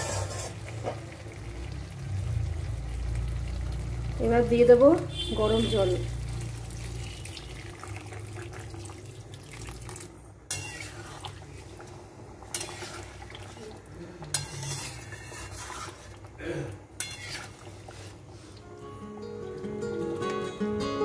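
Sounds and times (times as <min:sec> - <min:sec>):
spatula scraping a metal pan: 0:00.0 - 0:01.0, 0:10.5 - 0:11.2, 0:12.5 - 0:13.1, 0:14.3 - 0:16.2, 0:17.0 - 0:18.2
water pouring into a pan: 0:00.0 - 0:16.3.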